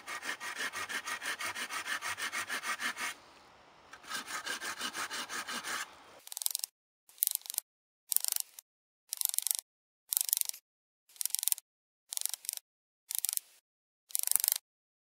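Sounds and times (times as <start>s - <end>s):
hand saw cutting wood: 0.0s - 6.2s.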